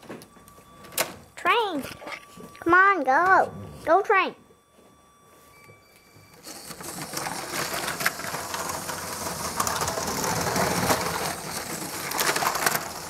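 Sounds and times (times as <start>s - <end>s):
toy train motor hum: 6.4s - 13.0s
wheels rattling over track: 6.8s - 13.0s.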